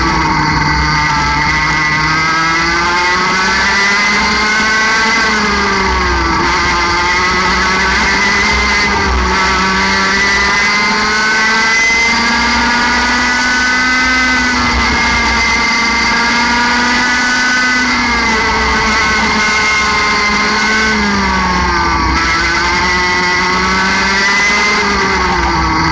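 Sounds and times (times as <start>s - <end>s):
two-stroke kart engine revving: 0.0s - 25.9s.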